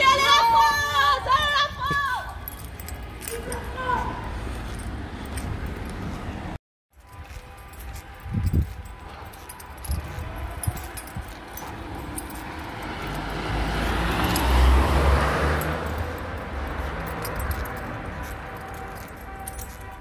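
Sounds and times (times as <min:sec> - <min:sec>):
vehicle driving past: 0:11.9 - 0:18.4.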